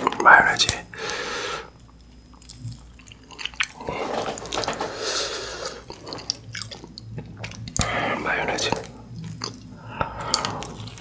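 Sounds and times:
wet squishing of food in sauce: 0:01.8 - 0:03.9, 0:05.6 - 0:08.0, 0:08.6 - 0:11.0
chewing: 0:01.8 - 0:11.0.

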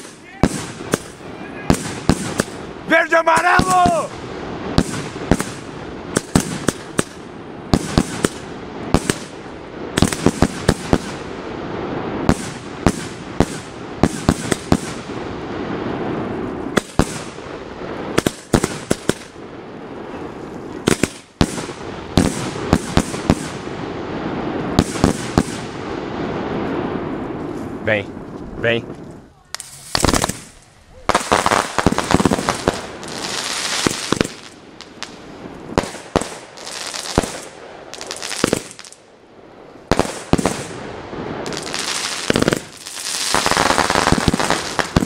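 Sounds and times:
continuous rushing hiss: 0:00.0 - 0:45.0
fireworks bangs: 0:00.0 - 0:45.0.

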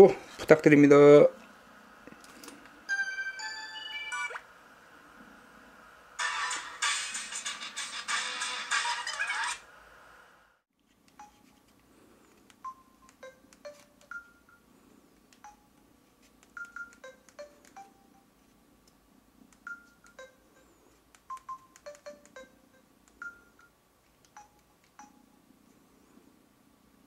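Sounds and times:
phone keypad beeps: 0:11.2 - 0:11.6, 0:12.6 - 0:14.6, 0:15.4 - 0:15.8, 0:16.6 - 0:18.2, 0:19.6 - 0:20.4, 0:21.3 - 0:25.3.

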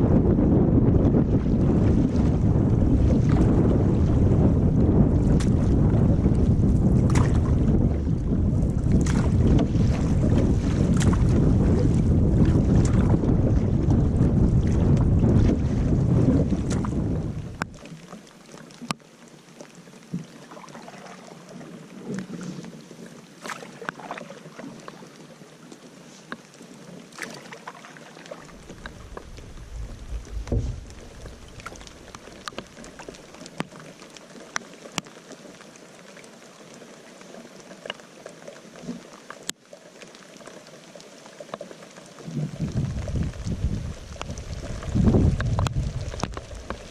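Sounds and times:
wind gust on microphone: 0:00.0 - 0:17.8, 0:28.4 - 0:32.6, 0:42.2 - 0:46.9
paddle pulling through water: 0:00.0 - 0:46.9
water dripping off paddle: 0:27.1 - 0:35.1.

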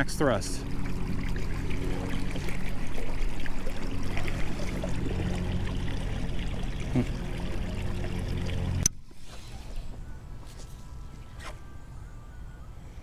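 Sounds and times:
water rushing past hull: 0:00.0 - 0:09.8.

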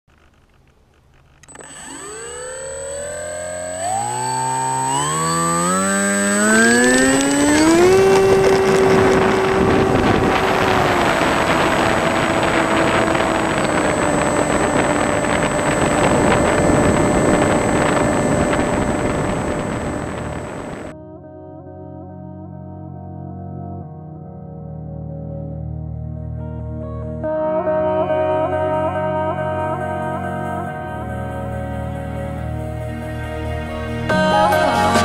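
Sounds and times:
model plane motor whine: 0:00.1 - 0:20.9
wind rush on microphone: 0:04.9 - 0:20.9.

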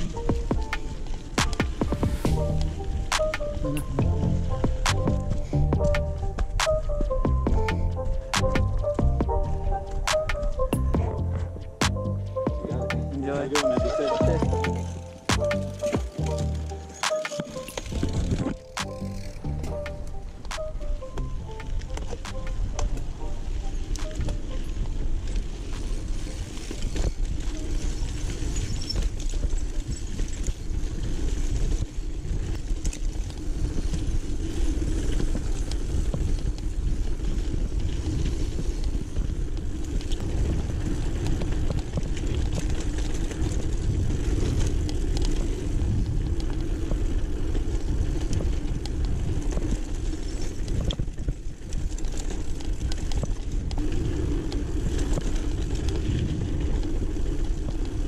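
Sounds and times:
bike rattling over bumps: 0:00.0 - 0:58.0
bike tyres on dirt: 0:00.0 - 0:58.0
wind on microphone: 0:21.4 - 0:58.0.

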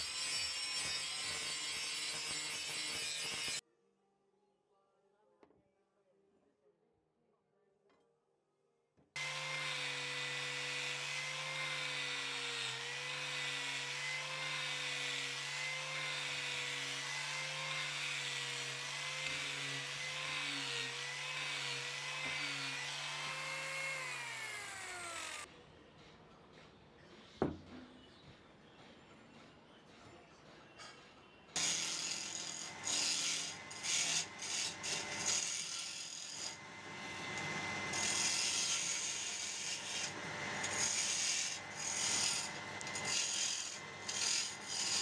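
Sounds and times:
angle grinder motor whine: 0:20.1 - 0:25.5.

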